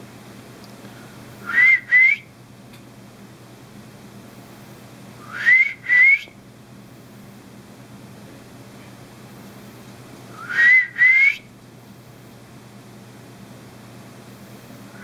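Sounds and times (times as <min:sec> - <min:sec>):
person whistling short notes: 0:01.4 - 0:02.3, 0:05.2 - 0:06.3, 0:10.4 - 0:11.5.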